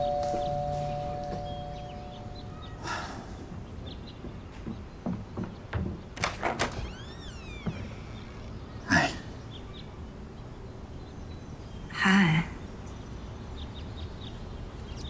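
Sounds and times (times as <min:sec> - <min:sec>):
bird chirping: 0:00.0 - 0:15.0
knocking on wooden door: 0:04.2 - 0:06.9
door opening with squeak: 0:06.2 - 0:08.8.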